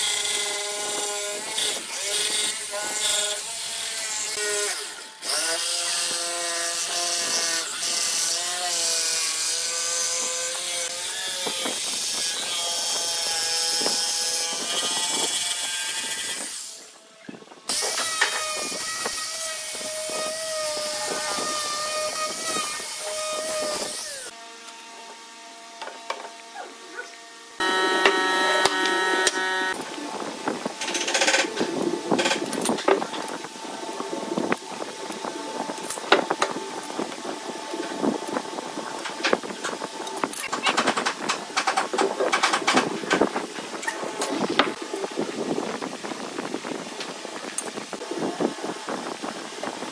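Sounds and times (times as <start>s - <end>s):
jigsaw cutting wood: 0.0s - 16.8s, 17.7s - 24.4s, 27.6s - 29.9s.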